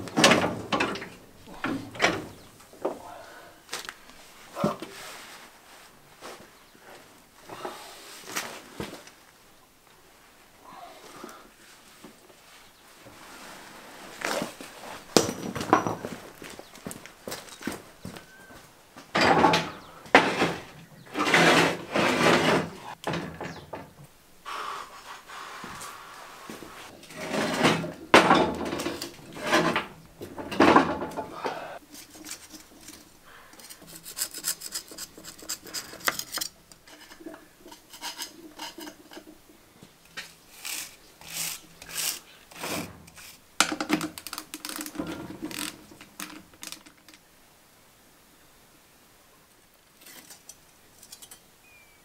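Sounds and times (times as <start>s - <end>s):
metal parts knocking on workbench: 15.2s - 16.2s, 43.6s - 44.2s
scraper scraping metal housing: 19.7s - 23.6s, 27.0s - 31.1s, 31.9s - 39.3s, 40.2s - 43.4s.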